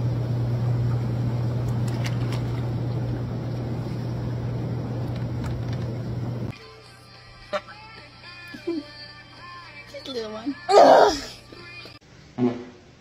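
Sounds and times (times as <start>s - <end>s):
pump hum: 0.0s - 6.5s.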